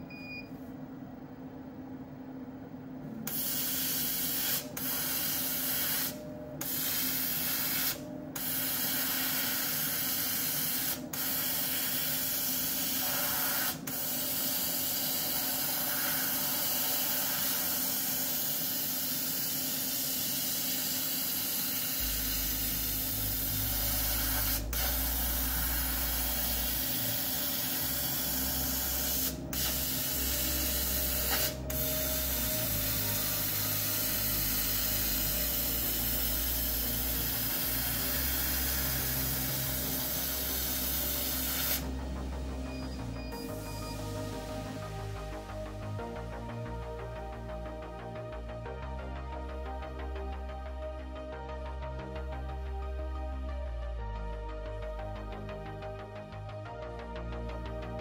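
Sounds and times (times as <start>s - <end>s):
low steady hum: 0.0s - 5.3s, 21.6s - 58.0s
air jet hissing: 3.3s - 45.7s.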